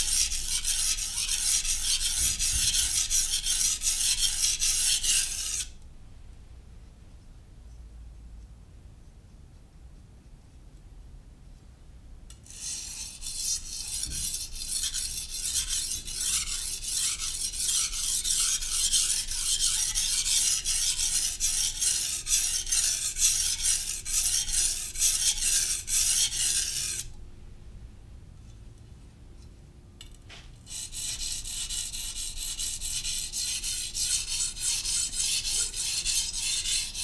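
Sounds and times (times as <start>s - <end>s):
knife blade scraping on whetstone: 0.0s - 5.8s, 12.4s - 27.1s, 30.7s - 37.0s.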